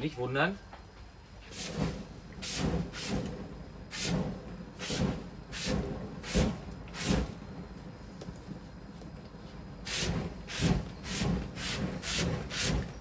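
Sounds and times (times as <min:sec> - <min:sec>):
oil spray hissing: 0:01.4 - 0:03.2, 0:03.9 - 0:07.4, 0:09.8 - 0:12.9
flames flaring: 0:01.4 - 0:13.0.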